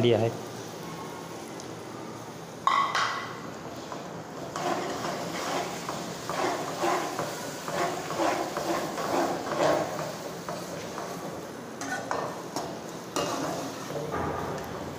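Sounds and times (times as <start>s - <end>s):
skimmer scraping and stirring in pot: 4.4s - 11.2s.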